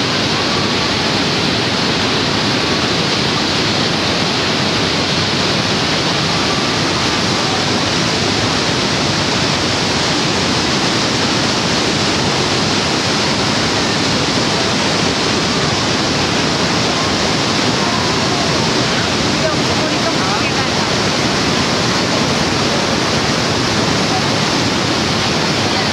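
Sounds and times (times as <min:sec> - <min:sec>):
waterfall rushing: 0:00.0 - 0:25.9.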